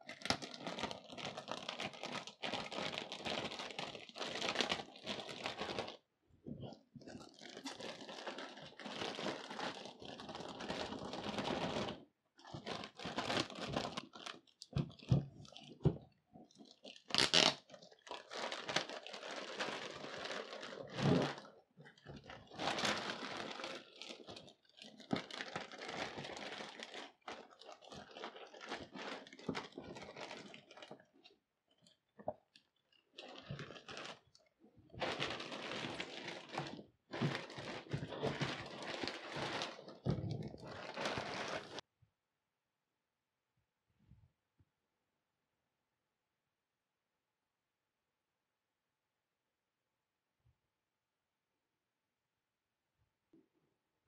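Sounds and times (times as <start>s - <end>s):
plastic bag crinkling: 0.0s - 6.0s, 6.6s - 41.8s.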